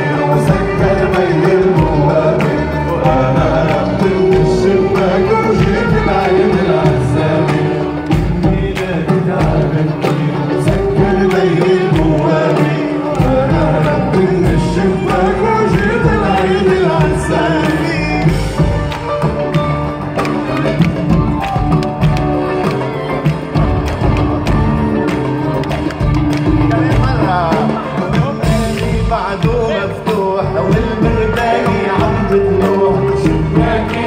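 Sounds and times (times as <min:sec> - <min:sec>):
man singing with band: 0:00.0 - 0:19.2, 0:26.0 - 0:34.0
steady percussion: 0:00.0 - 0:34.0.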